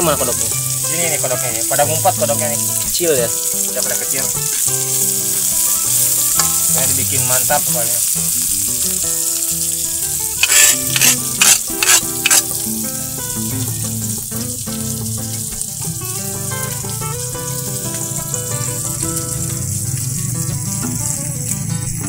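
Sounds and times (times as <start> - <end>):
background music: 0.0 - 22.0
food sizzling in a wok: 0.0 - 22.0
harsh scrapes in wok: 10.3 - 12.7.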